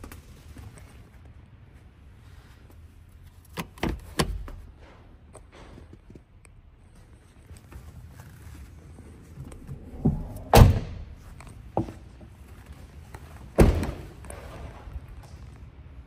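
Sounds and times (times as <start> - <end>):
car doors slamming shut: 10.0 - 11.1, 13.6 - 14.1.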